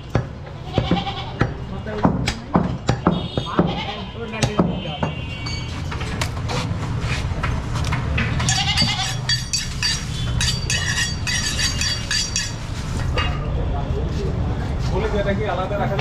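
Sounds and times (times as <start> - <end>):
goat bleating: 0.6 - 1.4, 8.5 - 9.4.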